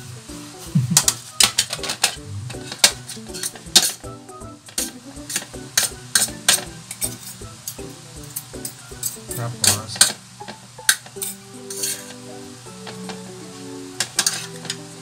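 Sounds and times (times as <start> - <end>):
forks clinking and scraping plate: 1.0 - 4.0, 4.7 - 12.2, 14.0 - 14.8.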